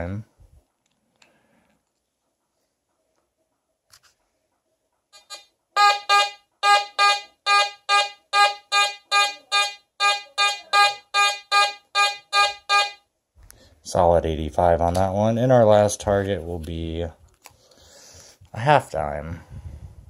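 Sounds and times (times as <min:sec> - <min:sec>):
metal detector beeping: 0:05.2 - 0:13.0.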